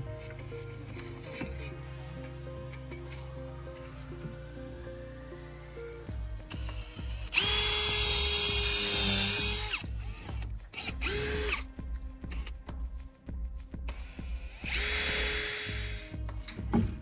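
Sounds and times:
cordless drill driving screws: 0:06.6 - 0:11.7, 0:14.0 - 0:16.1.

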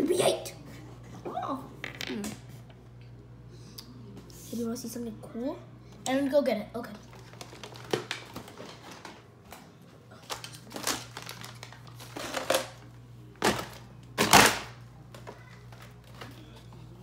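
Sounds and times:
rummaging through plastic toys: 0:07.0 - 0:12.8.

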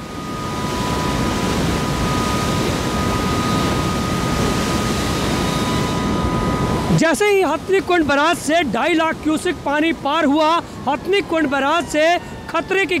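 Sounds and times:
wind on microphone: 0:00.0 - 0:07.0
two-note siren: 0:00.0 - 0:08.4, 0:10.2 - 0:13.0
floodwater rushing: 0:00.0 - 0:13.0.

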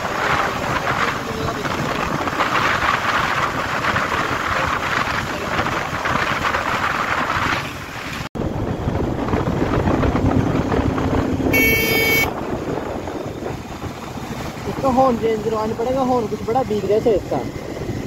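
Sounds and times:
road noise: 0:00.0 - 0:18.0
wind buffeting microphone: 0:00.0 - 0:18.0
motorcycle engine running: 0:08.4 - 0:18.0
motorcycle horn beep: 0:11.5 - 0:12.4.

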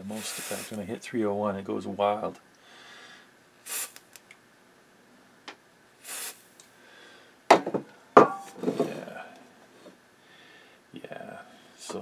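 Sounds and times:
aerosol spray hiss: 0:00.1 - 0:00.8, 0:03.6 - 0:04.1, 0:06.0 - 0:06.5
can knocking on bench: 0:07.5 - 0:08.4.

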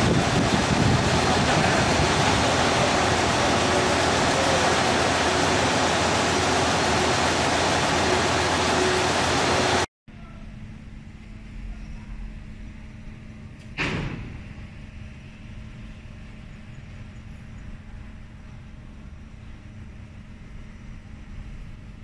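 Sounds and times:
loud steady rushing noise: 0:00.0 - 0:09.9.

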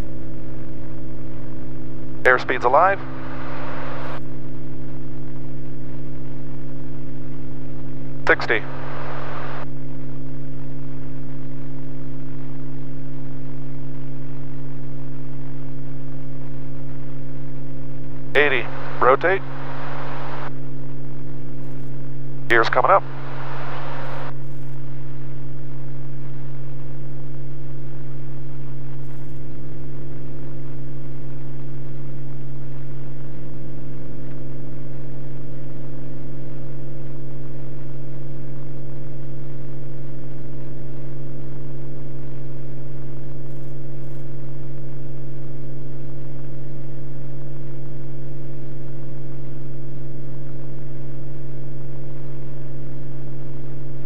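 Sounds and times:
propeller plane engine droning: 0:00.0 - 0:43.9.

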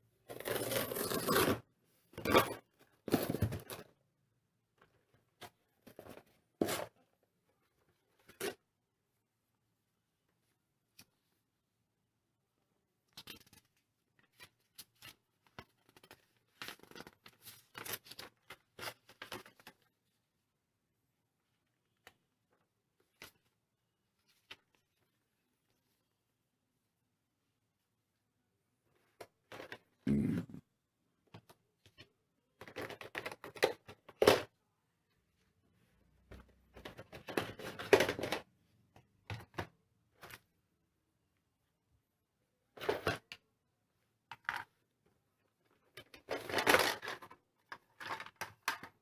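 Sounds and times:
plastic track parts clattering: 0:36.8 - 0:38.5, 0:45.9 - 0:49.0.

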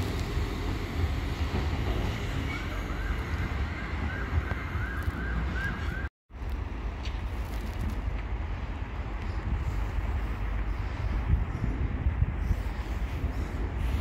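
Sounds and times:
wind noise on microphone: 0:06.4 - 0:14.0.

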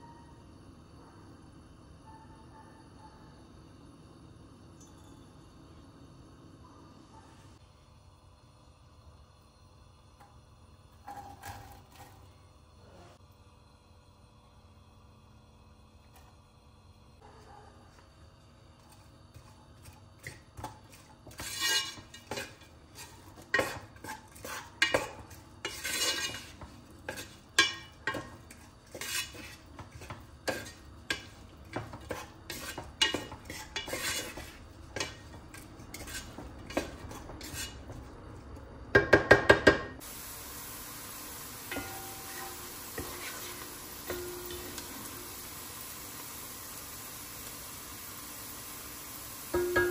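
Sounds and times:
wooden spoon scraping a pot: 0:18.8 - 0:38.5, 0:41.7 - 0:44.8.

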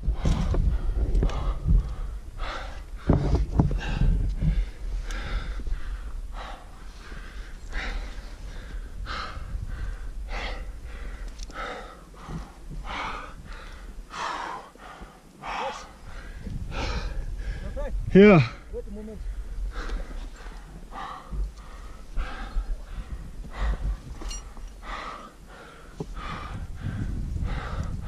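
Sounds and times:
heavy gasping breathing: 0:00.2 - 0:28.0
low thumps: 0:03.0 - 0:04.8.

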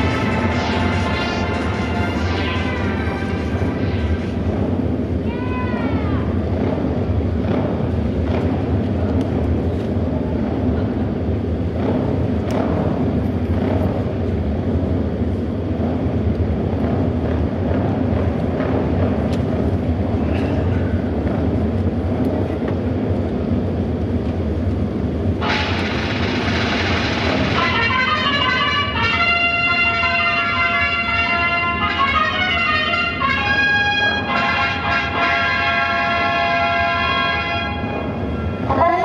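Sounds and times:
music: 0:00.0 - 0:22.3, 0:25.4 - 0:38.7
motorcycle engines droning: 0:00.0 - 0:29.2.

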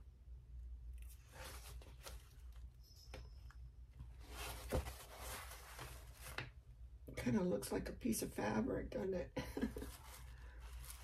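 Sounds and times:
paper rustling: 0:01.0 - 0:02.6, 0:04.2 - 0:06.6, 0:09.7 - 0:11.0.

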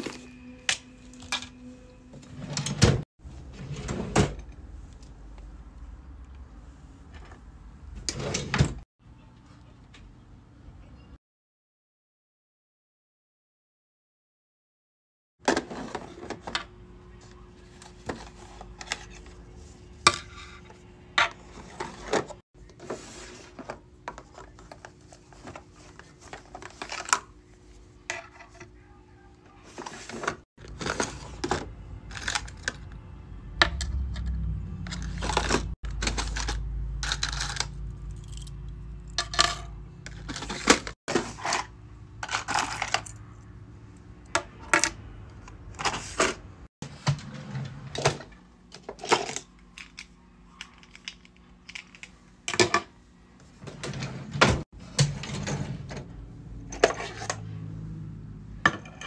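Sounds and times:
plastic drawers sliding and clacking: 0:02.2 - 0:04.5, 0:08.0 - 0:08.8, 0:15.4 - 0:16.7, 0:29.8 - 0:32.7, 0:34.9 - 0:36.5, 0:45.8 - 0:49.4, 0:53.6 - 0:56.1
keychain pieces clinking: 0:36.3 - 0:39.7.

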